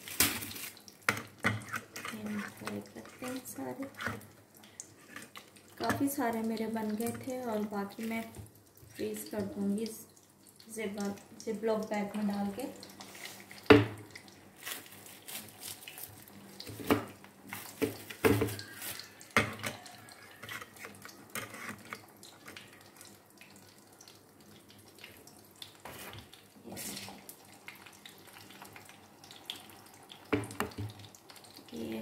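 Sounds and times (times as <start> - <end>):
food frying in hot oil: 0.0 - 32.0.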